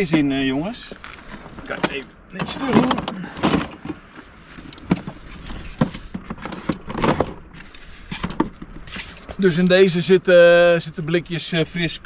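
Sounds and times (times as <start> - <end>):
rustling: 0.9 - 10.0
objects knocking and clattering: 1.7 - 9.4.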